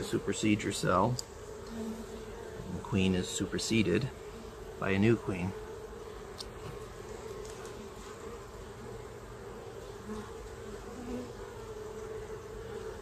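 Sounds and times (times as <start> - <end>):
honey bees humming: 0.0 - 13.0
brief lower bee buzzes: 5.5 - 13.0.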